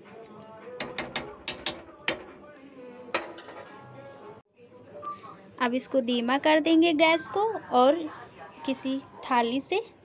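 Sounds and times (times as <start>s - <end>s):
sharp knocks of spoon on pan: 0.8s - 2.4s
metal spoon scraping iron pan: 3.2s - 3.8s.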